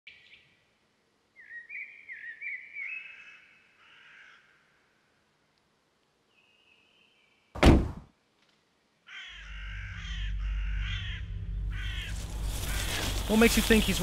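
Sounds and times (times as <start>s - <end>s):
birds calling: 1.4s - 4.8s, 9.0s - 14.0s
heavy thud: 7.6s - 8.1s
low steady rumble: 9.4s - 14.0s.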